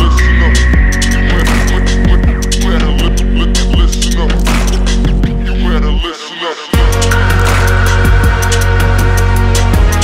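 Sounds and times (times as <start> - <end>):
low droning bass: 0.0 - 6.1, 6.8 - 10.0
held high tone: 0.0 - 8.9.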